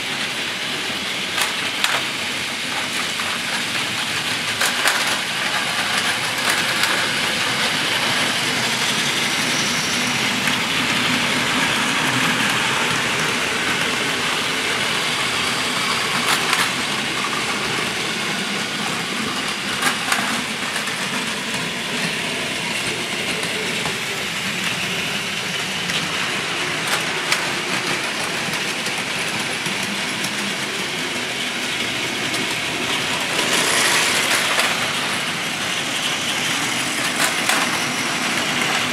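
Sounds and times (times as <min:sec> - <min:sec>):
toy train motors whirring: 0:00.0 - 0:38.9.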